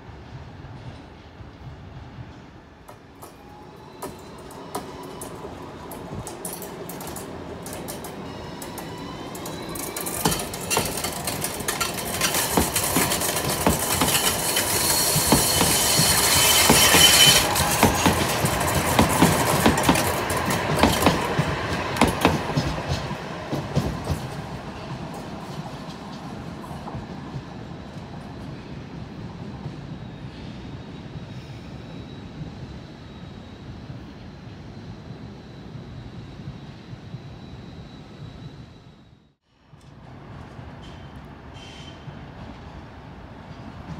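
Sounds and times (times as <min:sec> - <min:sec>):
wheels clicking over rail joints: 0:02.8 - 0:26.2
tram motor whine: 0:02.9 - 0:28.4.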